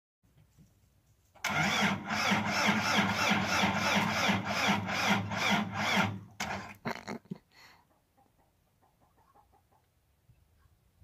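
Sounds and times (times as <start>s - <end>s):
diesel engine cranking: 1.4s - 6.8s.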